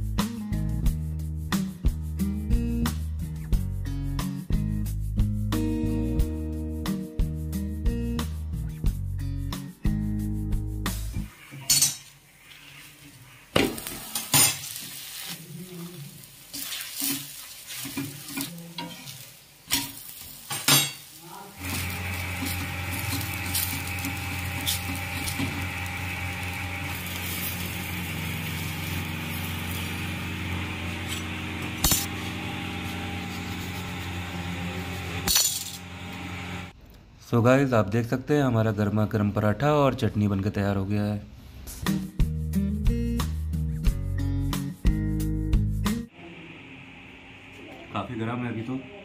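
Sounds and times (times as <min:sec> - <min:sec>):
flatbread sizzling: 0:11.2 - 0:36.7
steady hum: 0:21.6 - 0:36.7.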